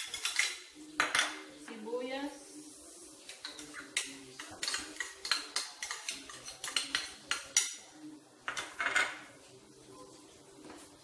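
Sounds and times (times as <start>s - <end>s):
metal spoon clinking on bowls: 0.0s - 1.4s, 3.3s - 9.3s.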